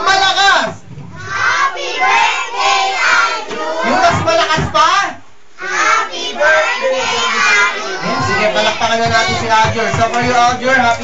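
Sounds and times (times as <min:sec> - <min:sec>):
children singing: 0:01.2 - 0:04.4, 0:05.6 - 0:10.2.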